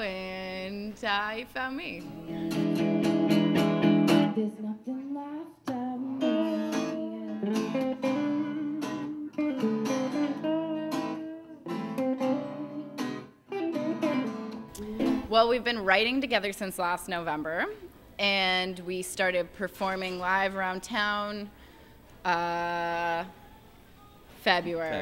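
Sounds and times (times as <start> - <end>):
strummed acoustic guitars: 2.1 - 4.5, 6.0 - 15.8
woman singing: 4.2 - 13.0, 13.7 - 15.9.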